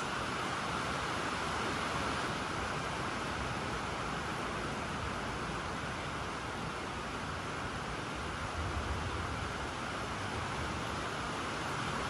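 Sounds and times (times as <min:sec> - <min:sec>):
steady rushing noise: 0:00.0 - 0:12.0.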